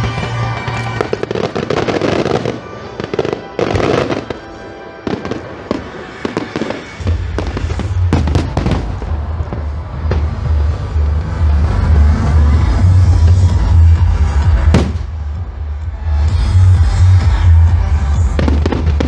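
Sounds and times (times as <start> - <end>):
fireworks bangs and crackles: 0.0 - 19.0
music: 0.0 - 19.0
deep bass: 7.0 - 19.0.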